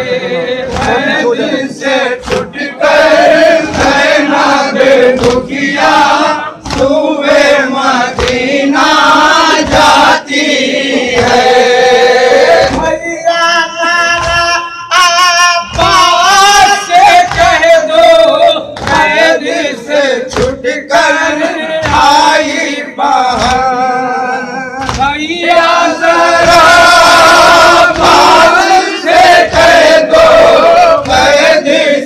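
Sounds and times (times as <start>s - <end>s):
men chanting in unison: 0.0s - 32.0s
chest-beating slaps: 0.6s - 12.0s, 12.6s - 13.0s, 15.7s - 19.5s, 20.2s - 22.6s, 23.3s - 23.8s, 24.8s - 31.6s.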